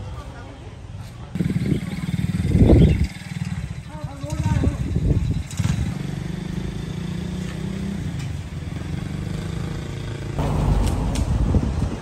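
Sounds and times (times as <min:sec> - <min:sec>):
wind noise on microphone: 0:01.4 - 0:06.0, 0:10.4 - 0:12.0
vehicle engine running: 0:10.2 - 0:12.0.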